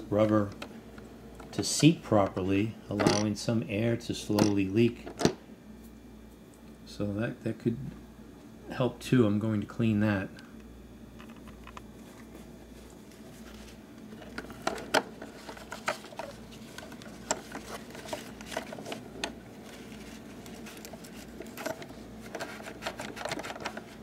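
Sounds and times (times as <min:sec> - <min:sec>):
low steady hum: 0:00.0 - 0:24.0
scratchy rubbing and scraping: 0:15.2 - 0:24.0.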